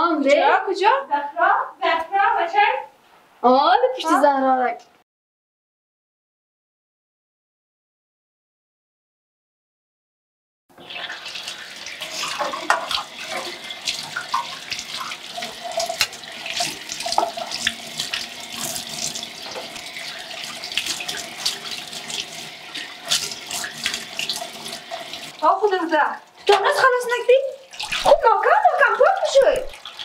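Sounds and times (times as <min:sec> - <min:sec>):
tap running into metal sink: 0:10.9 - 0:25.3, 0:26.5 - 0:26.9.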